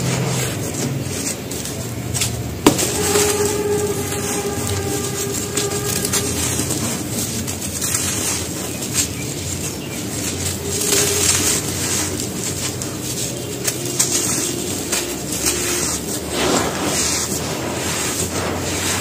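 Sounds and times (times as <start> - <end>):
hands crushing cement chunks: 0.0 - 3.6.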